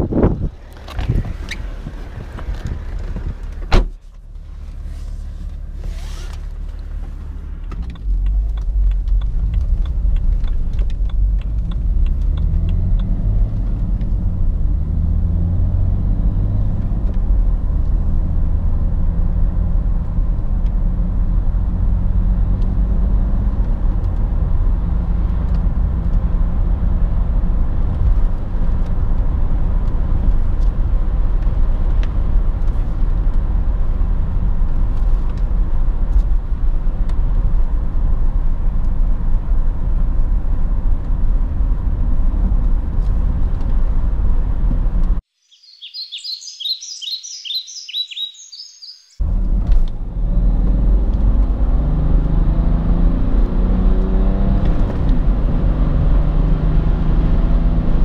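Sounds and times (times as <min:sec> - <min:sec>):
tyre and road rumble: 0:00.0 - 0:45.2
diesel engine revving in cabin: 0:04.4 - 0:45.2, 0:49.2 - 0:58.0.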